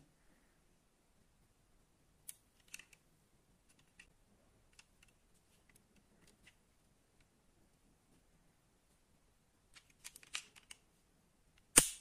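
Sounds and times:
metal toy car clicking in fingers: 9.8s - 10.8s.

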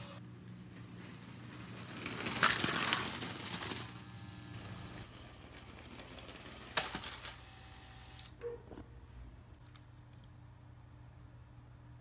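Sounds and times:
plastic wheels clattering on track: 0.8s - 7.5s
toy motor whirring: 2.4s - 8.3s.

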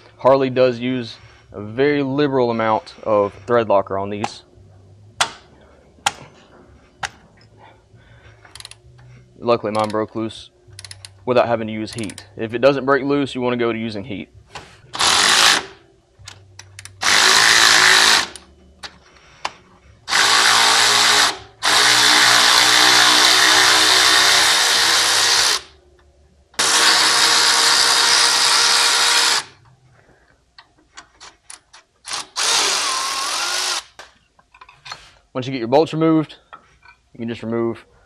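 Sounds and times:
electric ratchet running: 14.9s - 15.8s, 17.0s - 18.5s, 20.1s - 25.7s, 26.6s - 29.6s, 32.0s - 34.0s.

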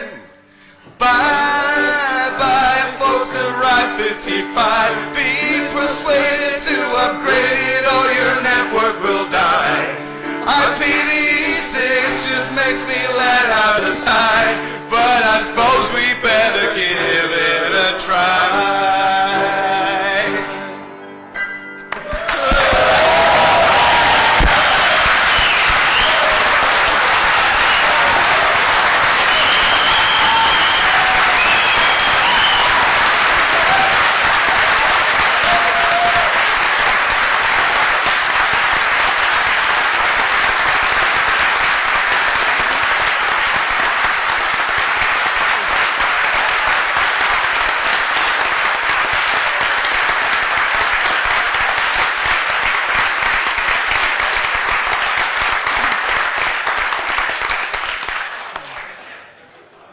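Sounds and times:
people cheering: 21.9s - 59.0s
large audience applauding: 21.9s - 59.3s
whistles: 25.2s - 26.3s, 27.6s - 28.0s, 29.2s - 32.9s.

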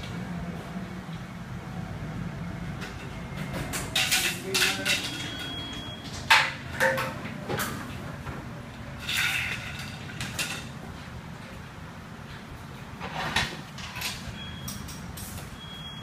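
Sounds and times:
metal tools clanking: 3.0s - 7.2s.

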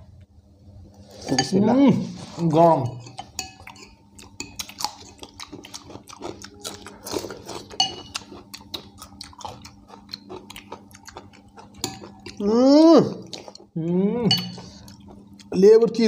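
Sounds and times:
people chewing: 1.0s - 15.6s
spoons clinking on ceramic bowls: 1.2s - 1.6s, 2.9s - 4.7s, 7.7s - 8.3s, 11.8s - 12.4s, 14.3s - 14.8s.

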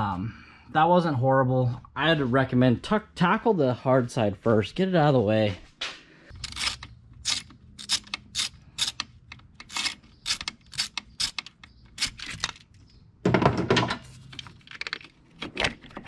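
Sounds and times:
tools scraping and rattling: 6.3s - 16.0s
ratchet clicking: 6.4s - 12.6s.

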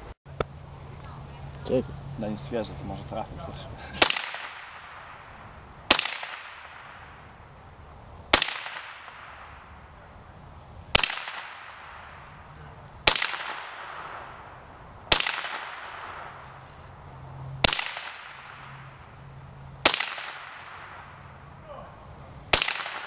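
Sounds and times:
rifle shots with echo: 4.0s - 7.3s, 8.3s - 9.9s, 10.9s - 12.3s, 13.0s - 16.4s, 17.6s - 18.8s, 19.8s - 21.3s, 22.5s - 23.0s.

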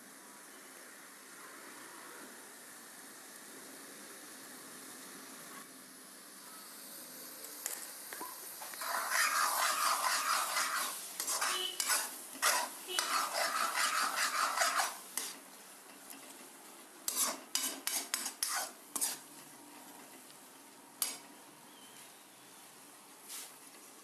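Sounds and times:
food sizzling in a pan: 3.0s - 19.5s, 20.9s - 21.4s
metal spatula scraping pan: 8.6s - 15.4s, 17.1s - 19.3s, 21.0s - 21.3s.

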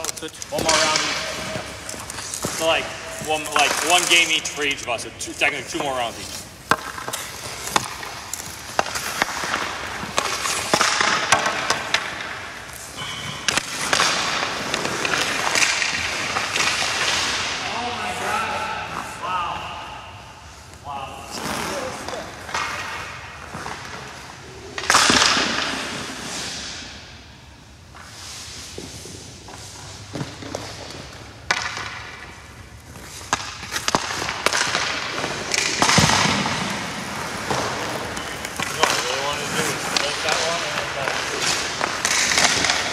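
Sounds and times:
sticks and puck clicking on ice: 0.0s - 17.8s, 29.6s - 42.9s
skates scraping on ice: 0.0s - 27.2s, 27.9s - 42.9s.

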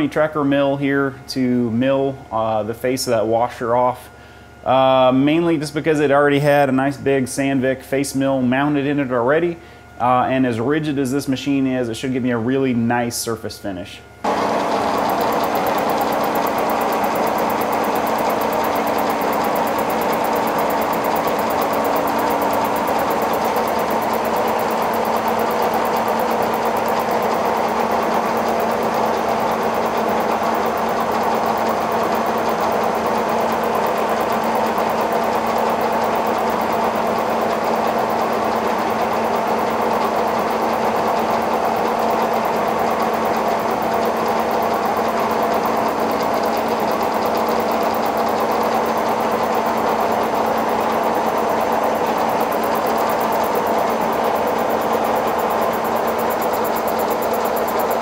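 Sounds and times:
milling machine humming: 14.2s - 58.0s.

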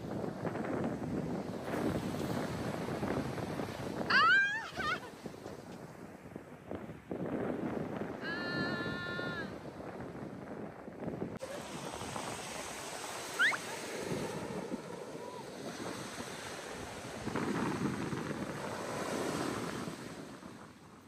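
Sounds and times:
waves washing up a beach: 0.0s - 21.0s
wind buffeting microphone: 0.0s - 21.0s
short rising chirp: 13.4s - 13.7s.

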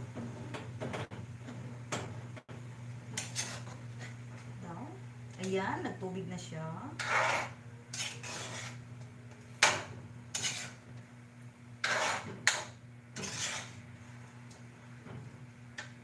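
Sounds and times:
spatula scraping metal wok: 3.2s - 4.2s, 6.9s - 8.9s, 10.3s - 10.8s, 11.8s - 13.9s.

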